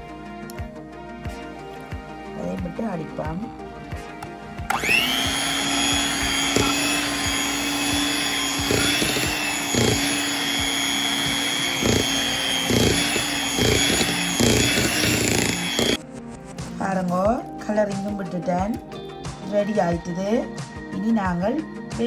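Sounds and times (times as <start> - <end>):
electric hand mixer whirring: 4.7 - 16.0.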